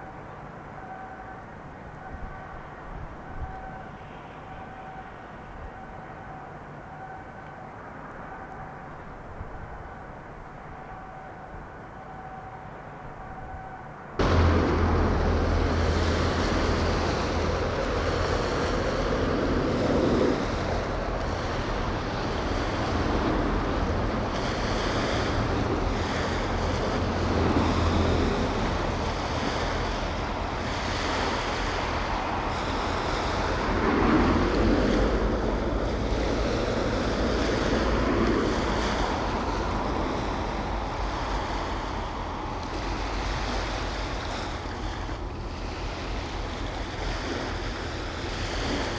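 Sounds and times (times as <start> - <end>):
wind buffeting microphone: 13.4 - 48.9
strong low rumble: 14.1 - 30.8.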